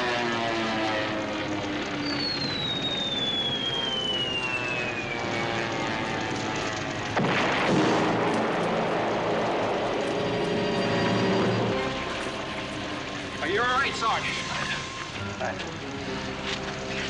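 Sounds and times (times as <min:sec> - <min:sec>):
steady drone: 0:00.0 - 0:17.0
falling projectile whistle: 0:02.0 - 0:05.3
explosion: 0:07.1 - 0:11.1.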